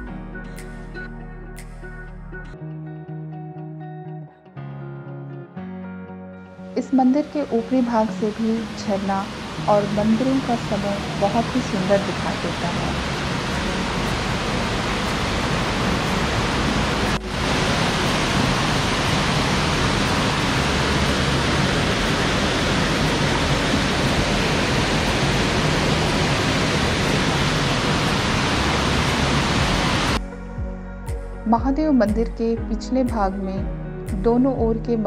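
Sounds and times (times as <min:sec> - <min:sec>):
waterfall rushing over rocks: 0:08.2 - 0:30.2.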